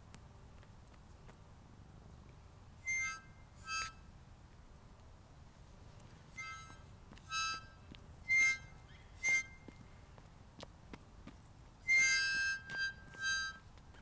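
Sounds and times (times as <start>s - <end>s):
harmonica blasts: 2.8s - 4.1s, 6.3s - 9.8s, 11.8s - 14.0s.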